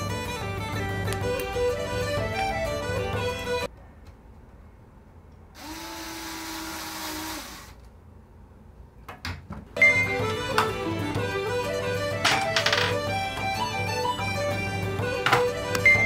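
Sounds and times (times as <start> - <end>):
small electric motor buzzing: 5.6 - 7.8.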